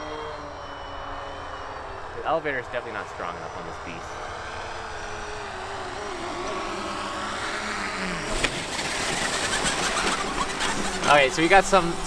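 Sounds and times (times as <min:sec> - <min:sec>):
model plane propeller whining: 0:00.0 - 0:12.0
wheels rolling on grass: 0:00.0 - 0:12.0
wheels thumping down: 0:06.2 - 0:11.9.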